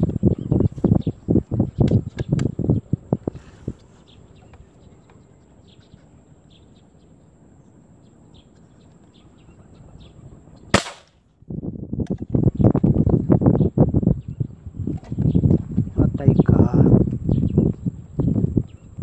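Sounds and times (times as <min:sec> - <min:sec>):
faint bird chirps: 0:00.0 - 0:10.8
sharp crack: 0:10.7 - 0:11.2.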